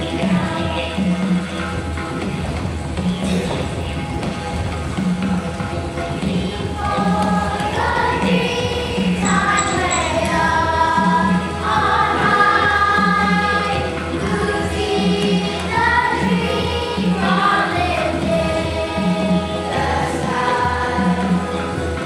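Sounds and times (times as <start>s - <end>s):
instrumental backing: 0.0s - 22.0s
group singing: 6.2s - 22.0s.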